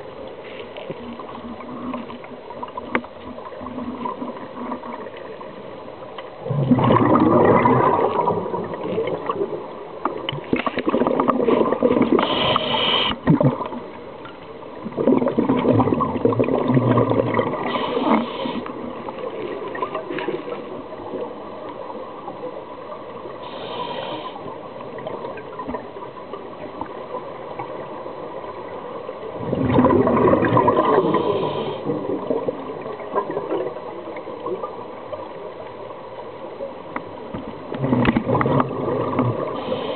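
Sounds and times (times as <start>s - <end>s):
air bubbling underwater: 6.4s - 9.4s, 14.9s - 17.8s, 29.4s - 33.3s.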